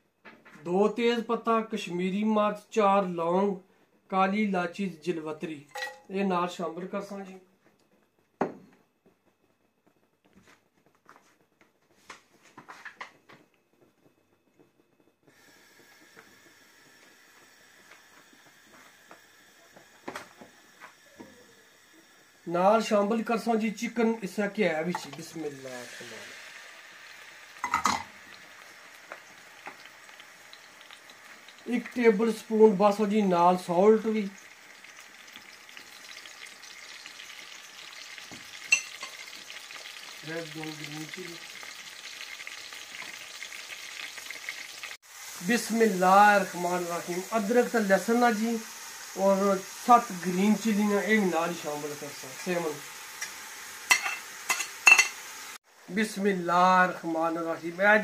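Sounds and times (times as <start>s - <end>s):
spices crackling in oil: 21.6s - 58.0s.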